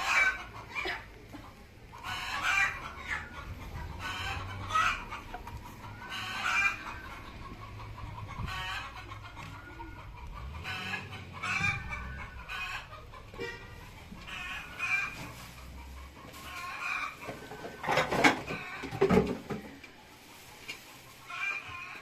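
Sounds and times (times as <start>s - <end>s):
chickens clucking: 0.0s - 22.0s.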